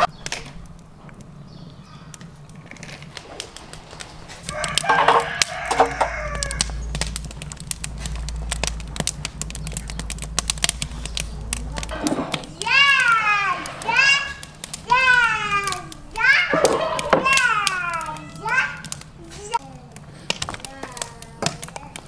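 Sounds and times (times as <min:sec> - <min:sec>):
burning wood crackling: 0:00.0 - 0:22.0
low steady rumble: 0:00.0 - 0:22.0
rooster crowing: 0:04.4 - 0:06.9.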